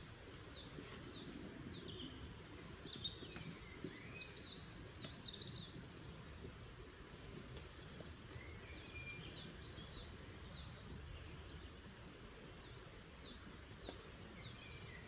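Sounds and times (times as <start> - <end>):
small birds chirping and whistling: 8.2 - 15.0.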